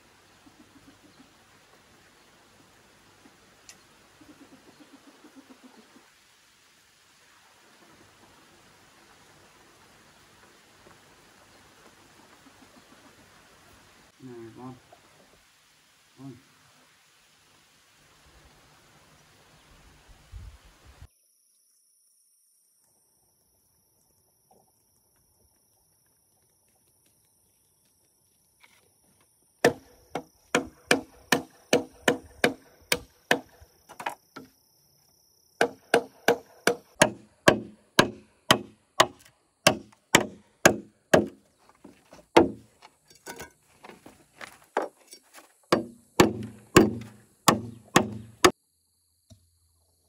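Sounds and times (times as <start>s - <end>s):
machete chopping bamboo: 29.6s - 33.6s, 35.6s - 41.4s, 42.4s - 42.6s, 45.7s - 48.6s.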